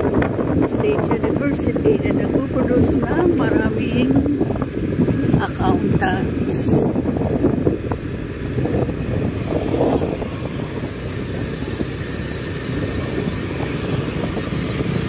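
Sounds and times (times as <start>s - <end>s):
wind noise on microphone: 0.0s - 15.0s
motorcycle engine: 6.4s - 15.0s.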